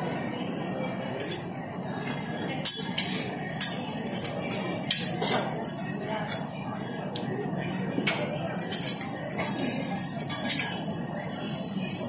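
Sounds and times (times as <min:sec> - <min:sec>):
restaurant din: 0:00.0 - 0:12.0
metal spatulas clinking on griddle: 0:02.6 - 0:06.5, 0:08.1 - 0:10.8.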